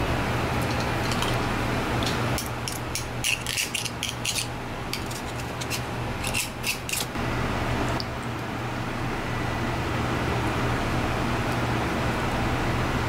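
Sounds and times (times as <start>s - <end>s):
steady low hum: 0.0s - 13.0s
knife scraping scallop shell: 2.4s - 7.2s.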